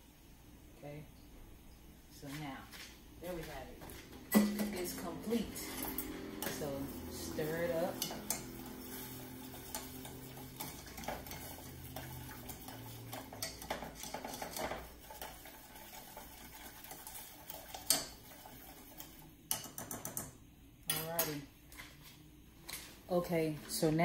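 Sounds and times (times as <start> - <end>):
spoon scraping metal saucepan: 4.3 - 16.0.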